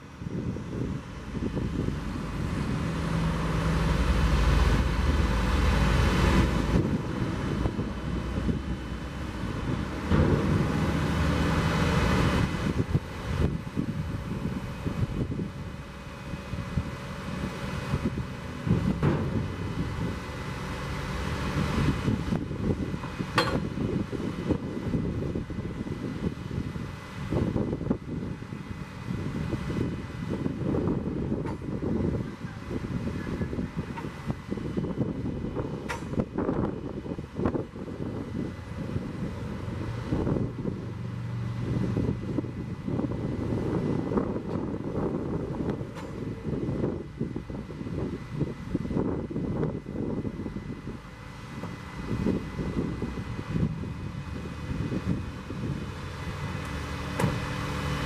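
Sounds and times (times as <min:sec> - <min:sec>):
diesel engine and hydraulics: 0:00.0 - 0:58.0.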